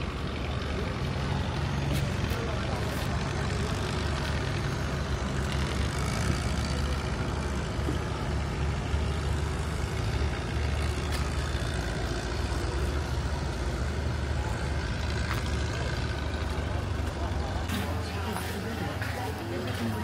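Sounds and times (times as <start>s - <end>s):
engine running: 0.0s - 20.0s.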